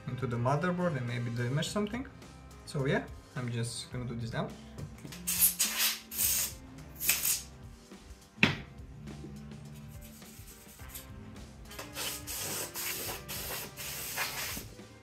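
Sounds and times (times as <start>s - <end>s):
faint background music: 0.0s - 15.0s
compressed air hissing: 5.2s - 7.5s, 11.7s - 14.8s
brush rubbing on plastic: 9.8s - 11.0s, 11.8s - 14.7s.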